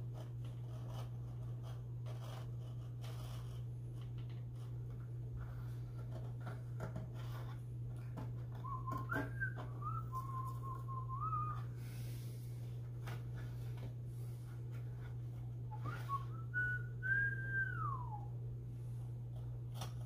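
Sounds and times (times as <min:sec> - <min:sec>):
steady low hum: 0:00.0 - 0:20.0
person whistling a slow tune: 0:08.6 - 0:11.7, 0:15.7 - 0:18.3.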